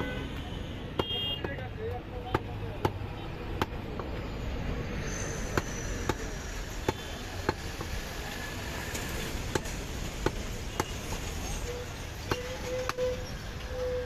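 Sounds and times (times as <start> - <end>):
steady background noise: 0.0 - 14.0
cleaver chopping on wooden block: 3.6 - 4.1.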